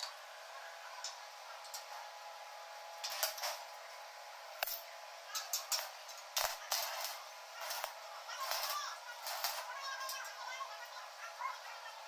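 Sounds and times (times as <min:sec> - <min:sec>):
arc welding crackling: 0:02.8 - 0:12.0.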